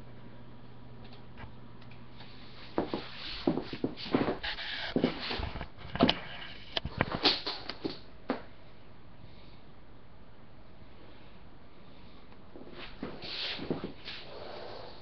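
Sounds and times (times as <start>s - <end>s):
steady low hum: 0.0s - 15.0s
webcam and cable handling noise: 4.2s - 8.1s.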